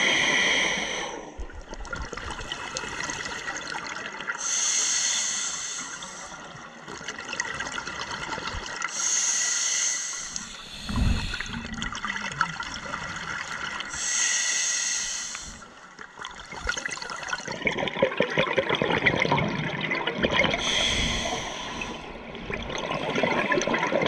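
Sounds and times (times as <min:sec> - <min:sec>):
hissing regulator inhalations: 0:04.4 - 0:06.4, 0:08.9 - 0:11.8, 0:13.9 - 0:15.7, 0:20.6 - 0:22.1
rumbling exhaled bubbles: 0:10.6 - 0:14.0, 0:16.2 - 0:24.0.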